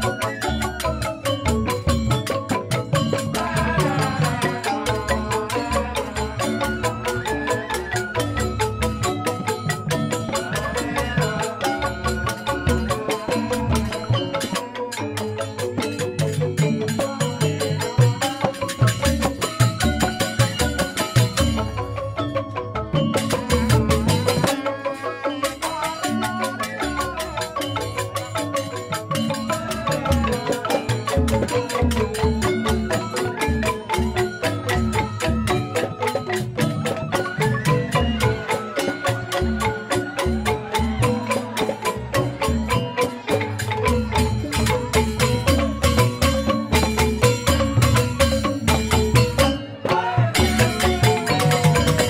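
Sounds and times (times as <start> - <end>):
bamboo xylophones playing: 0.0 - 52.0.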